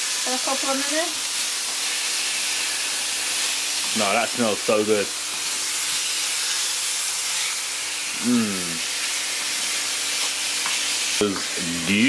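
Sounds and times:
food sizzling in a wok: 0.0 - 12.0
person humming: 8.2 - 8.8.

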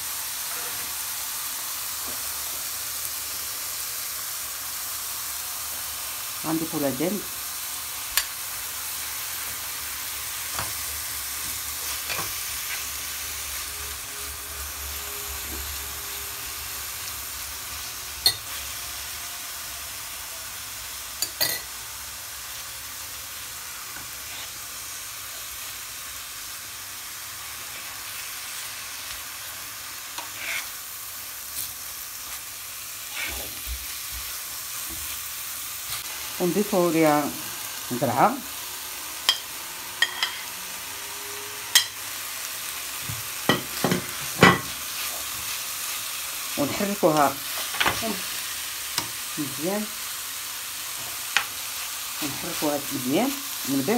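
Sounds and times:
meat and onions sizzling in pan: 0.0 - 53.9
metal spoon clinking on pan: 18.2 - 18.4, 21.2 - 21.7, 40.0 - 40.4.

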